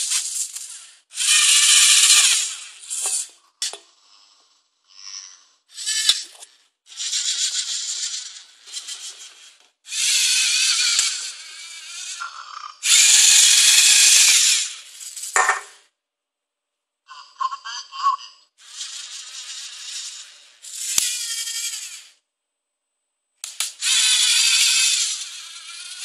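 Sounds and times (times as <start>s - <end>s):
servo motors whirring: 0.0s - 3.3s, 5.0s - 15.4s, 18.6s - 22.1s, 23.6s - 26.0s
sharp click: 23.4s - 23.8s.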